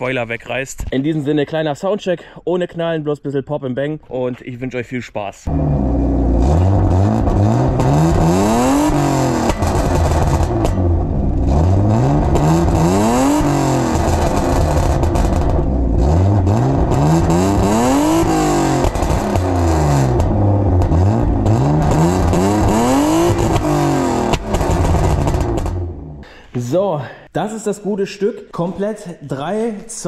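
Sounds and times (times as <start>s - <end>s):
car engine revving: 5.5s - 26.2s.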